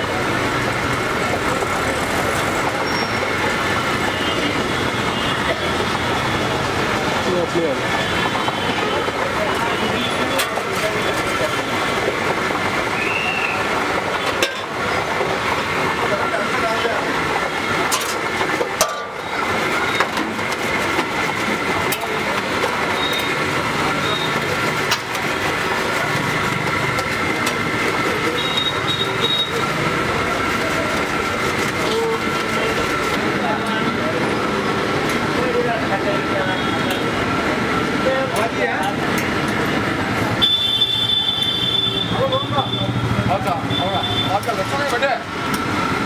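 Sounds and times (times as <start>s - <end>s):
oil sizzling deep-frying: 0.0s - 33.3s
street traffic: 0.0s - 46.0s
faint voices: 1.2s - 40.4s.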